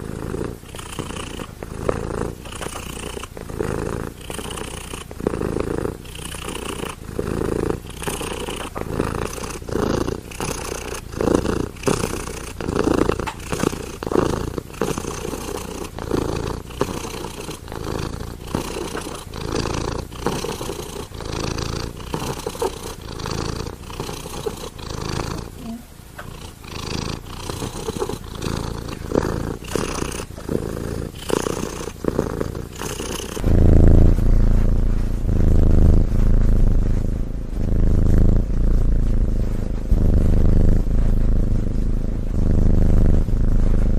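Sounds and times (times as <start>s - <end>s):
cat purring: 0.0s - 43.9s
loud low sound: 33.4s - 42.4s.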